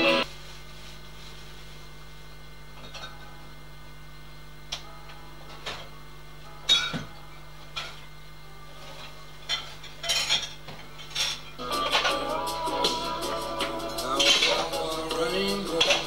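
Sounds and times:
music: 0:00.0 - 0:00.3, 0:03.1 - 0:03.6, 0:04.7 - 0:10.0, 0:11.4 - 0:16.0
faint steady hum: 0:00.0 - 0:16.0.

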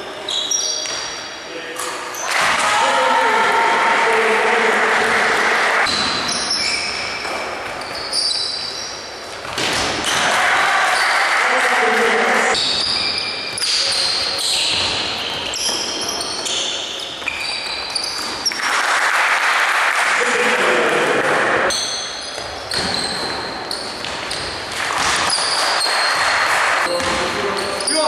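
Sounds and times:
players' voices echoing: 0:00.0 - 0:07.9, 0:09.0 - 0:15.9, 0:19.9 - 0:28.0
sneakers squeaking on hardwood: 0:00.2 - 0:01.4, 0:05.8 - 0:10.2, 0:12.5 - 0:18.7, 0:21.7 - 0:28.0.

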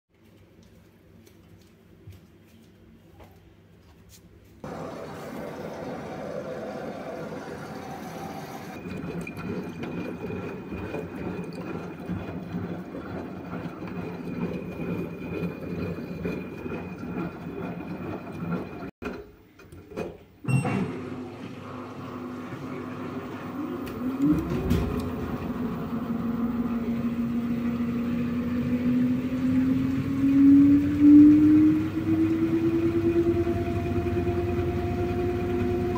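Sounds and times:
washing machine motor whine: 0:04.6 - 0:18.9, 0:20.5 - 0:35.9.

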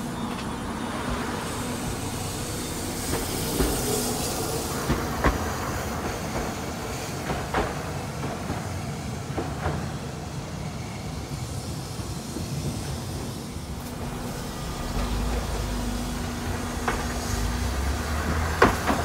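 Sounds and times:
tram pulling away: 0:00.0 - 0:19.0
wheels knocking on rails: 0:14.7 - 0:19.0.

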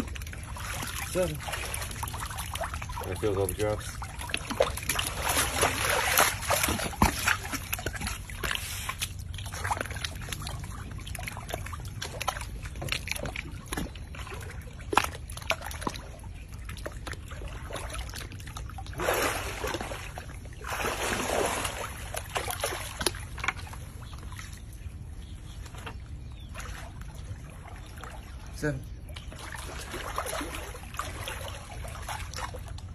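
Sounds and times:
water dripping: 0:00.0 - 0:24.5
water splashing: 0:00.0 - 0:32.9.

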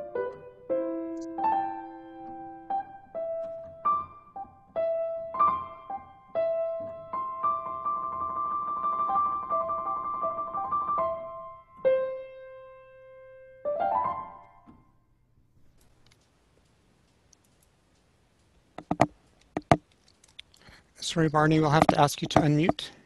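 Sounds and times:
piano solo: 0:00.0 - 0:14.8.

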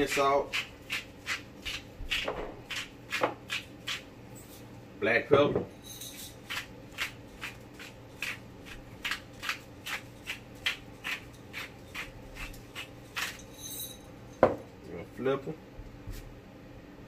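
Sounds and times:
pepper mill grinding: 0:05.9 - 0:14.0.

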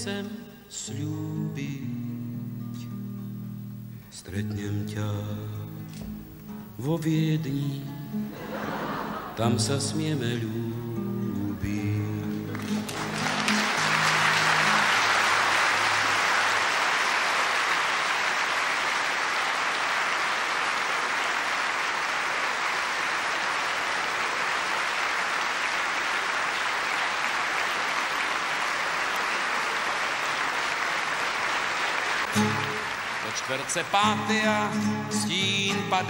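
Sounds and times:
audience applauding: 0:08.4 - 0:09.4, 0:12.0 - 0:35.7
acoustic guitar chord ringing: 0:32.3 - 0:33.1, 0:33.9 - 0:36.0.

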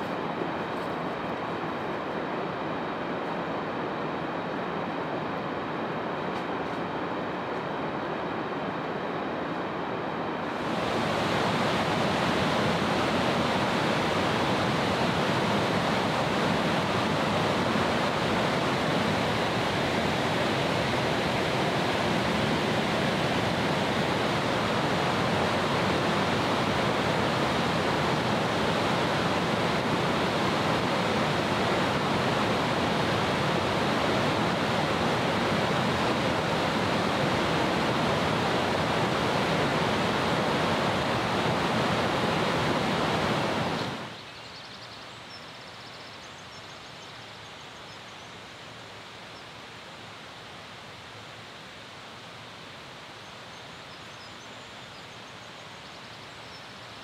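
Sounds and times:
fast-flowing mountain water: 0:10.4 - 0:44.2
quiet outdoor background: 0:43.0 - 0:57.0.

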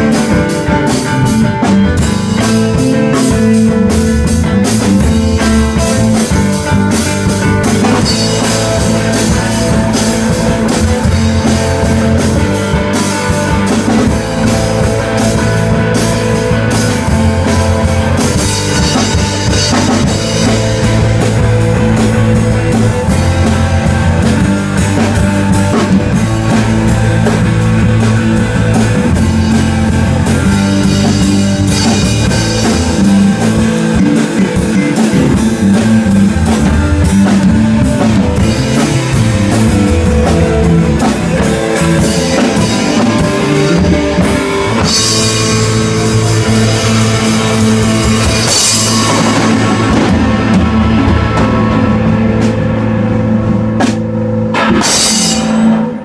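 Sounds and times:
drum kit: 0:00.0 - 0:56.0
electric guitars: 0:00.0 - 0:56.0
cymbal crash: 0:54.5 - 0:56.0.

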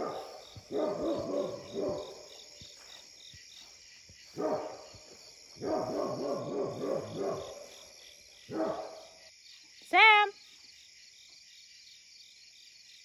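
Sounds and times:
dog barking: 0:00.0 - 0:02.4, 0:04.4 - 0:07.8, 0:08.5 - 0:09.2
night insects chirping: 0:00.0 - 0:13.0.

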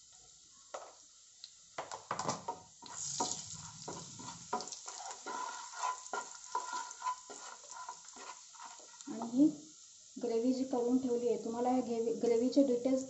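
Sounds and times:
spices sizzling in hot oil: 0:00.0 - 0:13.0
wooden spatula scraping a pan: 0:02.8 - 0:09.4.

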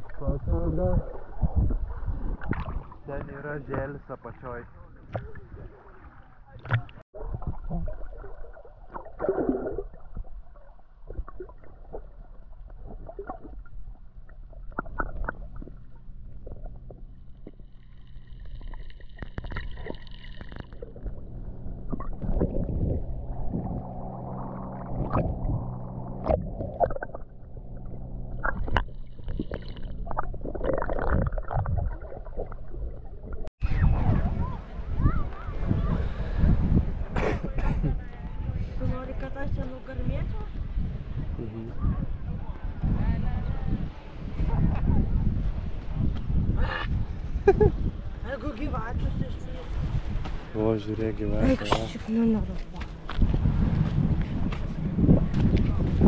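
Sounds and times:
water splashing against hull: 0:00.0 - 0:56.0
boat engine humming: 0:11.7 - 0:37.1.

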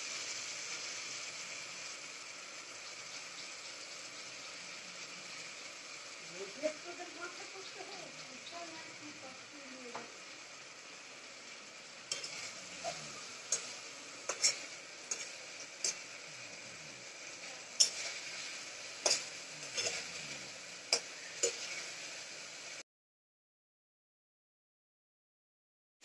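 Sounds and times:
potatoes sizzling in oil: 0:00.0 - 0:22.8
metal spatula scraping a pot: 0:12.0 - 0:22.1.

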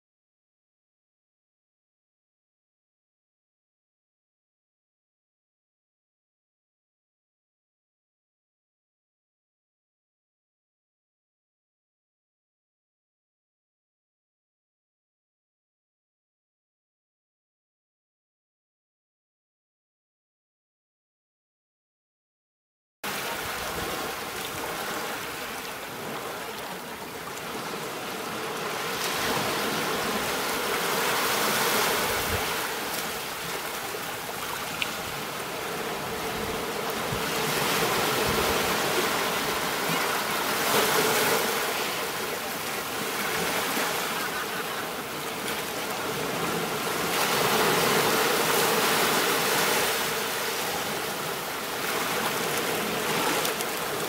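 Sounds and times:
ocean surf breaking on beach: 0:23.1 - 0:54.0.

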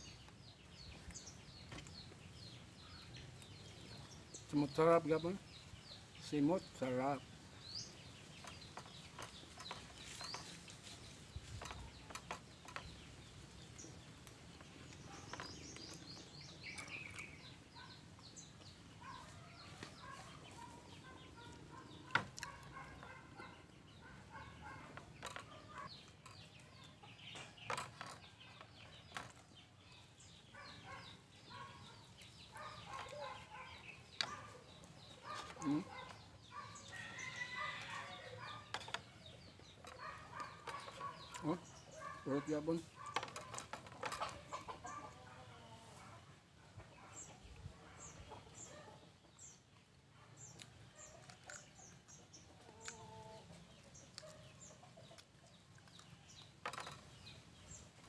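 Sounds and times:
chickens clucking: 0:30.6 - 0:47.4, 0:48.0 - 0:49.3, 0:51.0 - 0:57.9.

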